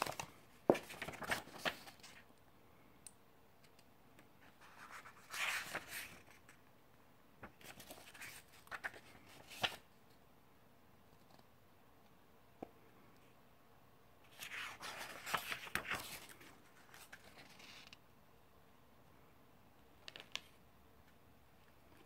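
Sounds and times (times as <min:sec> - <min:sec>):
paper pages turning: 0:00.0 - 0:02.3, 0:04.4 - 0:06.6, 0:07.4 - 0:09.9, 0:14.3 - 0:18.0, 0:20.0 - 0:20.6.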